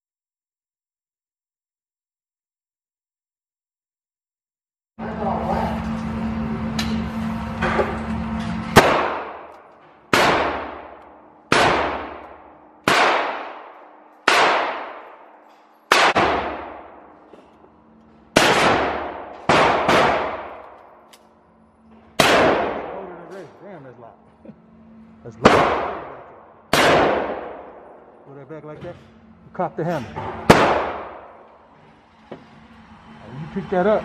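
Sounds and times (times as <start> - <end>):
gunshots with echoing decay: 8.8 - 17.2, 18.3 - 20.8, 22.2 - 23.2, 25.4 - 28.1, 30.5 - 31.5.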